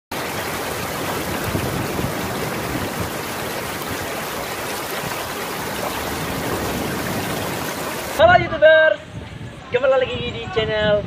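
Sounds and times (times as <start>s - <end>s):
water rushing over rocks: 0.1s - 8.2s.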